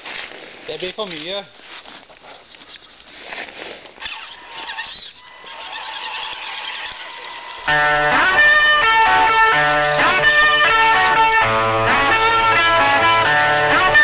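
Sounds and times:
electric guitar rock music: 7.7s - 14.0s.

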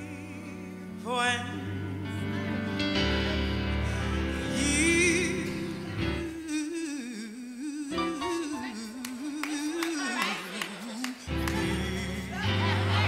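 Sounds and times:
band backing: 0.0s - 6.4s, 11.2s - 13.0s
person singing with vibrato: 0.0s - 13.0s.

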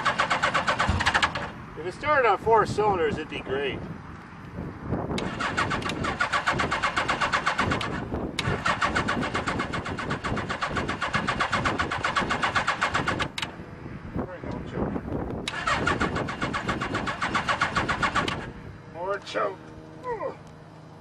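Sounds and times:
motorcycle engine cranking: 0.0s - 1.6s, 5.2s - 13.5s, 15.4s - 18.5s.

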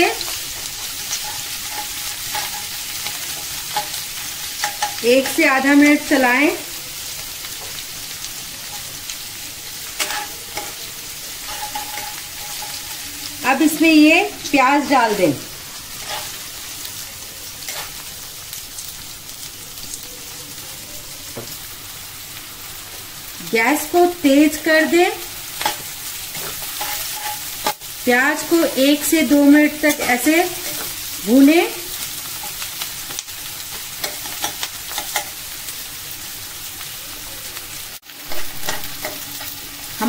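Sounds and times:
onions sizzling in oil: 0.0s - 40.0s
metal spatula scraping pan: 0.9s - 5.5s, 9.8s - 13.3s, 15.9s - 16.5s, 17.6s - 18.0s, 25.4s - 27.9s, 38.3s - 40.0s.

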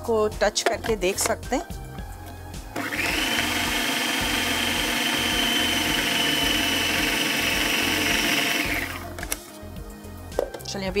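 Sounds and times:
food processor running: 2.8s - 9.1s.

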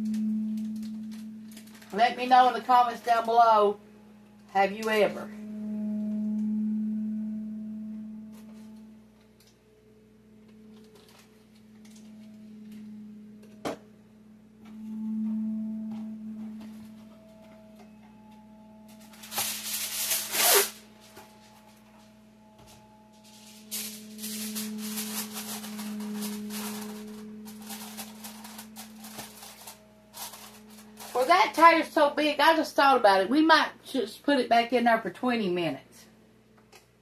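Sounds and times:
steady low hum: 0.0s - 34.0s
aluminum foil tearing: 23.7s - 31.3s
foil crinkling: 23.7s - 31.3s.

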